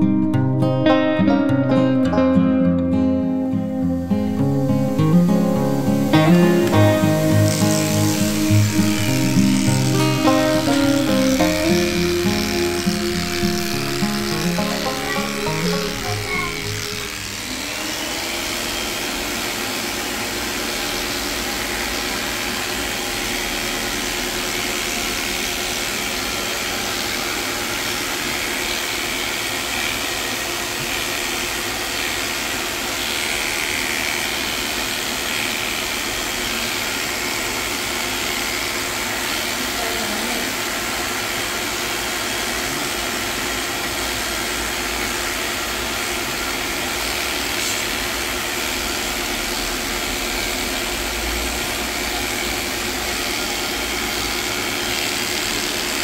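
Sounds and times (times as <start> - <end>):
electric dog clipper buzzing: 3.0 - 56.0.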